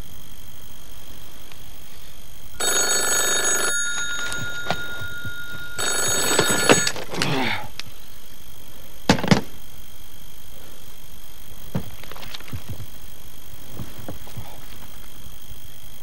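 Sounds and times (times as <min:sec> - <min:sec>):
telephone ringing: 0:02.6 - 0:07.2.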